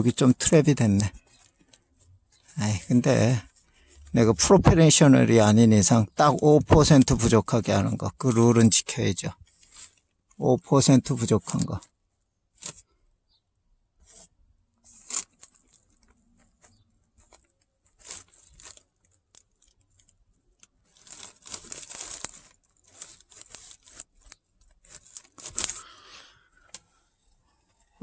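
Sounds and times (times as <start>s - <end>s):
plastic sheeting crinkling: 14.8s - 26.3s.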